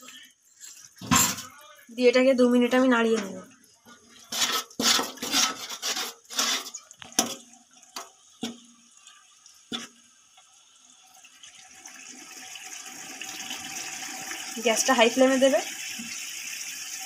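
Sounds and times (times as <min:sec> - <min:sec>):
metal spatula scraping a pan: 0:04.2 - 0:06.9
paste sizzling in oil: 0:04.2 - 0:06.9.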